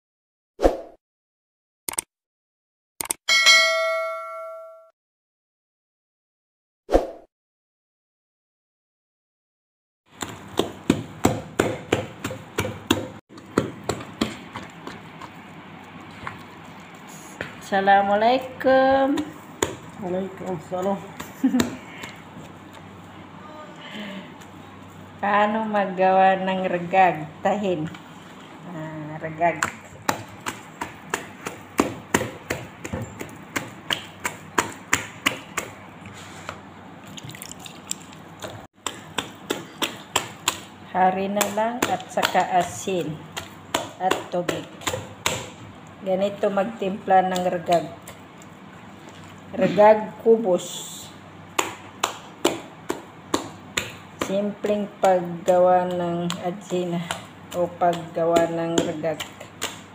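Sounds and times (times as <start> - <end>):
hand slapping wet dough: 10.1 - 17.7, 19.0 - 22.9, 29.4 - 45.8, 47.1 - 49.4, 51.4 - 59.9.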